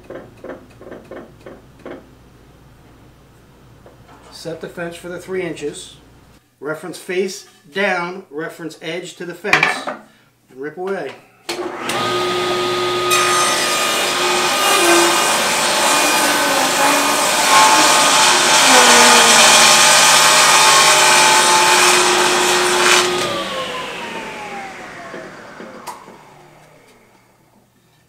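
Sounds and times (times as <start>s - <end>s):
table saw cutting wood: 11.5s - 27.1s
saw spinning down whine: 14.0s - 27.2s.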